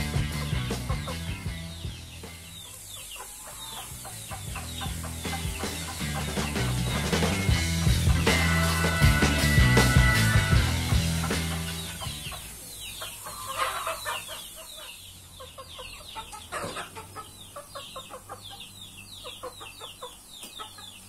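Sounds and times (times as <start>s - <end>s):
music: 0.0s - 12.6s
fowl clucking: 0.2s - 21.0s.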